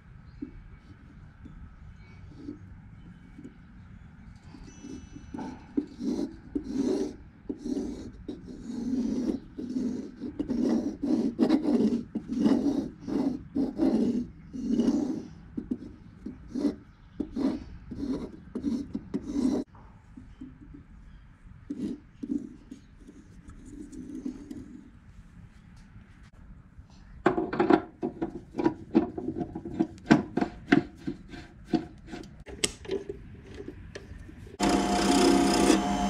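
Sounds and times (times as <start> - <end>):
pencil scratching on wood: 4.6 - 19.7, 21.7 - 24.8, 34.6 - 36.0.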